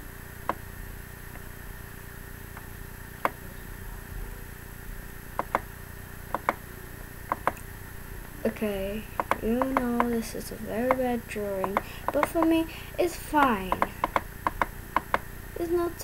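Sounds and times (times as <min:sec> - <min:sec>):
steady background hum: 0:00.0 - 0:16.0
computer mouse button clicking: 0:11.6 - 0:12.5.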